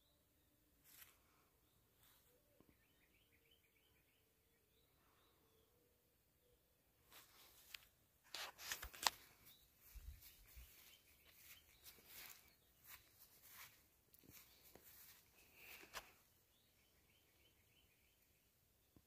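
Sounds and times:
faint rustling: 7.0 - 16.2.

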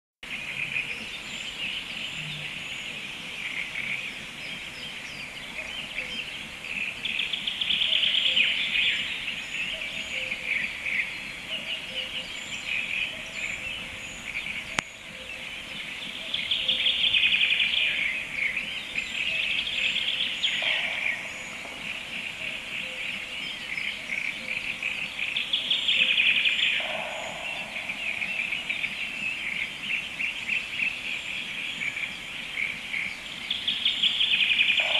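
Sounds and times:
small songbirds singing: 0.2 - 34.9.

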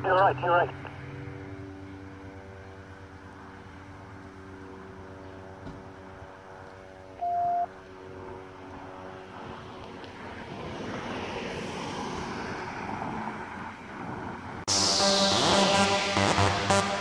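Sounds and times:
street traffic: 0.0 - 17.0
short high beep: 7.2 - 7.7.

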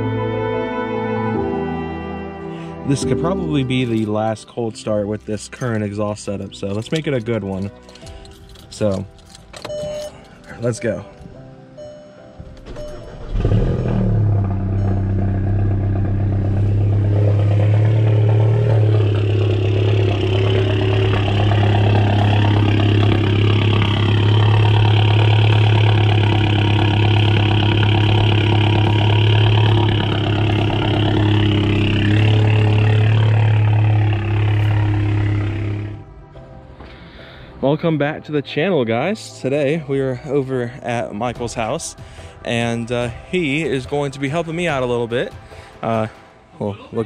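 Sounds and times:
car engine cold start and idle: 5.1 - 11.0, 11.6 - 36.6.

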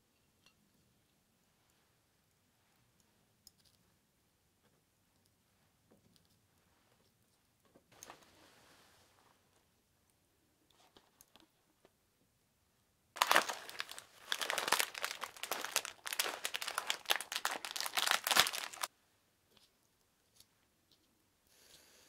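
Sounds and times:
plastic packet crinkling: 13.2 - 18.9.

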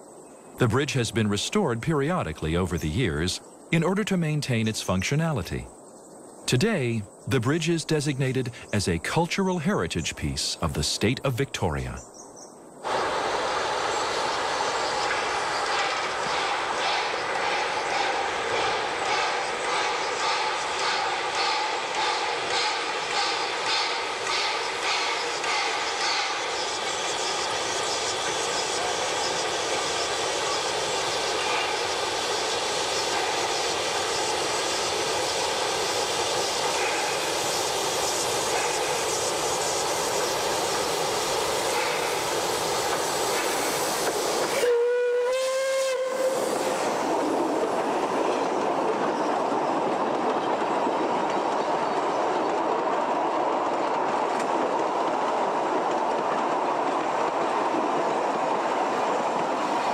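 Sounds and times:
steam locomotive hissing: 12.8 - 59.9
carriage wheels rumbling on rail: 12.9 - 44.7, 46.0 - 59.9
steam whistle blast: 44.5 - 46.8.

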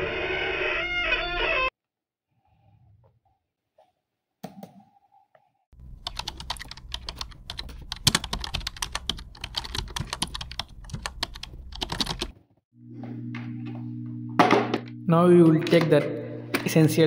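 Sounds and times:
laptop keyboard typing: 5.8 - 12.3.

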